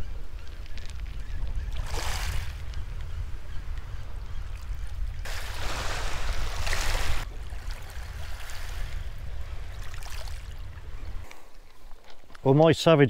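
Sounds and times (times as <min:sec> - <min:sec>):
wind rumble on microphone: 0:00.0 - 0:11.6
wave washing over shingle: 0:05.3 - 0:09.1.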